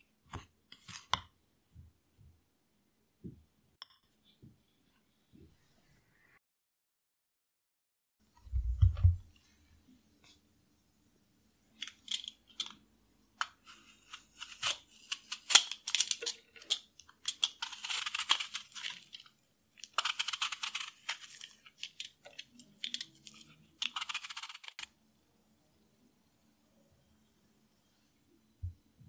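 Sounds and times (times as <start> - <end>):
peeler scraping apple skin: 13.4 - 24.9.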